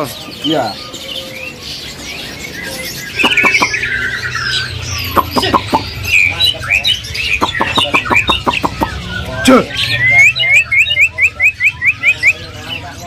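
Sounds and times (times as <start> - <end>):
songbirds chirping and whistling: 0.0 - 13.0
sharp clicking bird calls: 2.7 - 12.9.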